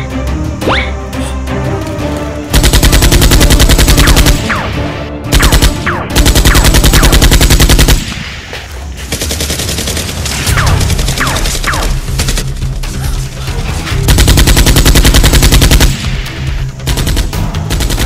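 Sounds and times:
rapid automatic gunfire: 2.5 - 8.2, 9.0 - 12.5, 14.1 - 18.0.

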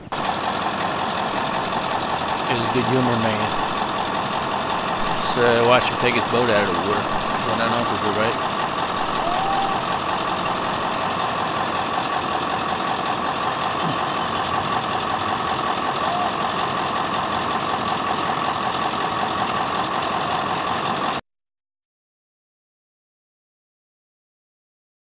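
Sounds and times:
engine idling: 0.0 - 21.2.

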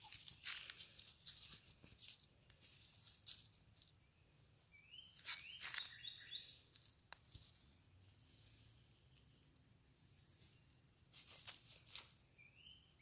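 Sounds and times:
dry leaves rustling and crackling: 0.0 - 4.0, 5.2 - 8.9, 10.0 - 12.2
bird chirping: 3.9 - 6.9, 12.2 - 13.0.

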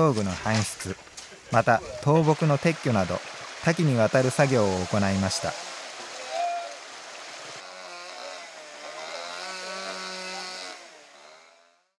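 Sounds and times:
mountain stream rushing: 0.0 - 11.3
chainsaw engine running: 7.6 - 12.0.

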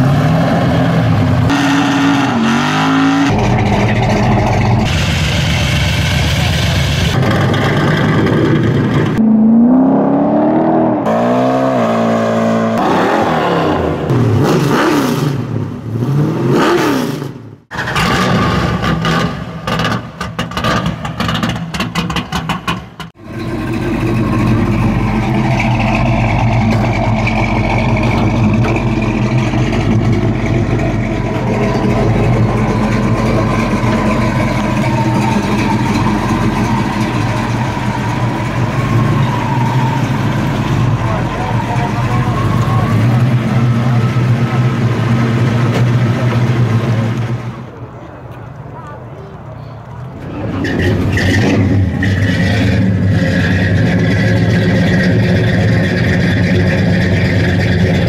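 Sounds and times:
car engine revving: 0.0 - 47.8
car engine idling loudly: 3.3 - 9.2, 22.4 - 47.8.

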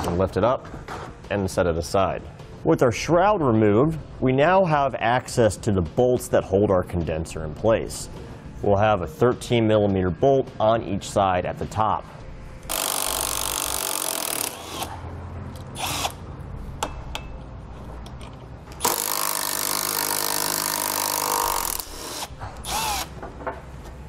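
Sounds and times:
cordless drill running: 12.7 - 14.9, 15.8 - 16.2, 18.8 - 23.1.

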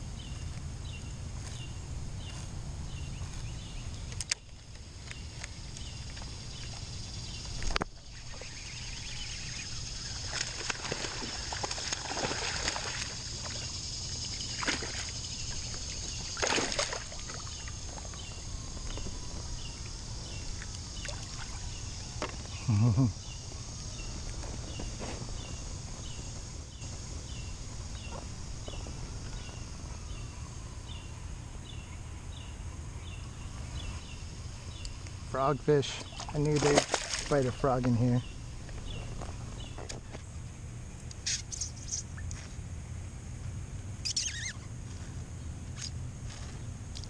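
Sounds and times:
small evenly spaced ticks: 1.3 - 31.0, 33.0 - 47.0
steady high-pitched drone: 6.9 - 11.4
water lapping against kayak: 7.6 - 22.3, 35.9 - 37.6
knocks and splashes: 10.2 - 13.7, 14.5 - 18.1, 36.0 - 37.6.

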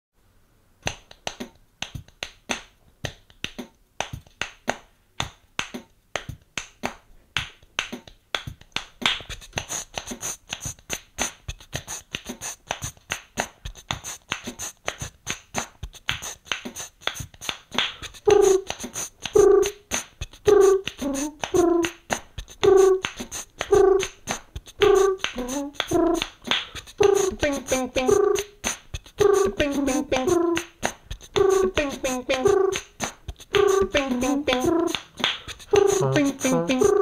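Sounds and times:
looped percussion beat: 8.5 - 37.0.

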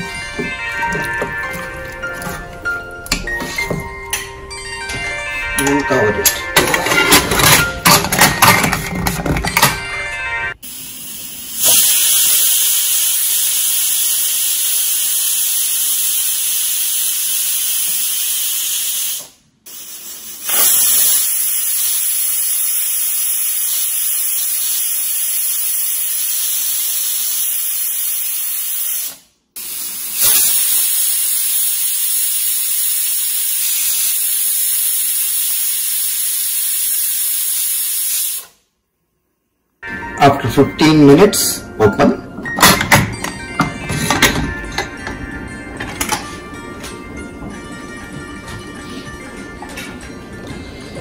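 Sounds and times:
steam hissing from pressure cooker: 10.5 - 38.6.

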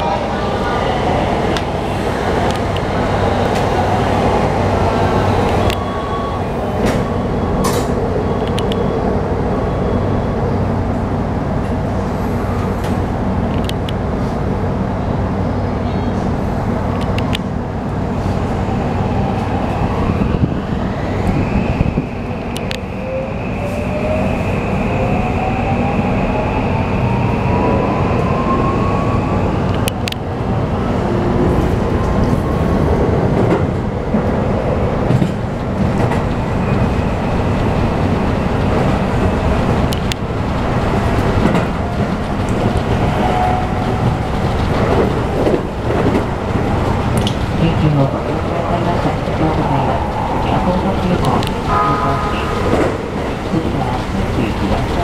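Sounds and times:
train running rumble: 29.3 - 55.0
steady high tone: 48.2 - 55.0.

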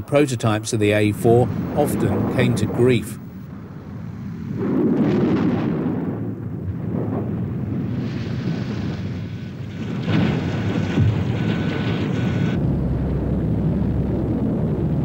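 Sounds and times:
rocket motor roaring: 9.0 - 15.0.

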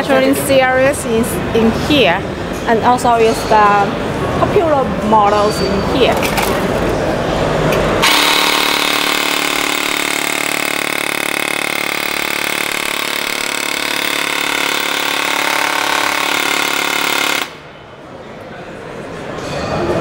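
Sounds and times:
electric airsoft gun buzzing whir: 8.0 - 17.6.

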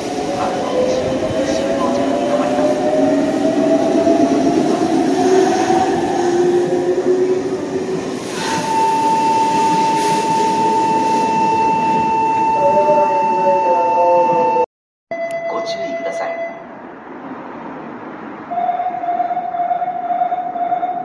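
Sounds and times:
steady high tone: 0.0 - 16.8, 18.5 - 21.0.

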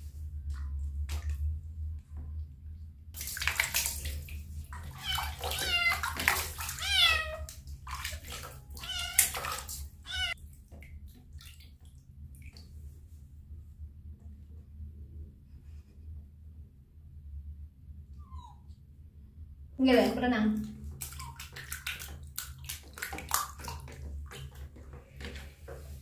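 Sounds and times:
water sloshing and splashing: 0.0 - 13.3, 20.0 - 26.0
kitten meowing: 5.0 - 7.5, 8.8 - 10.4.

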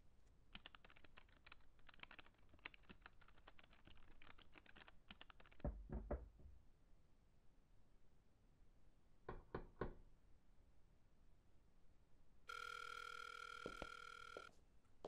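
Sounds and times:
typing on laptop keyboard: 0.5 - 6.2.

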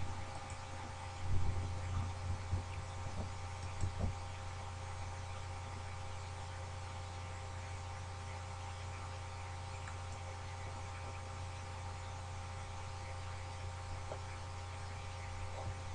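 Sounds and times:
low electrical hum: 0.0 - 15.9
soft low thumps: 1.2 - 4.4.

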